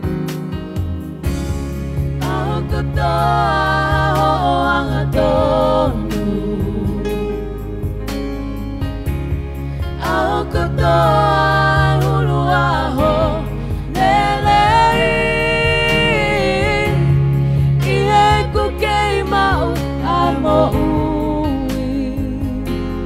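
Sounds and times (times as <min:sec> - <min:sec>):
electronic keyboard chords: 0:00.0 - 0:23.0
women singing a hymn: 0:02.2 - 0:07.3, 0:10.0 - 0:22.7.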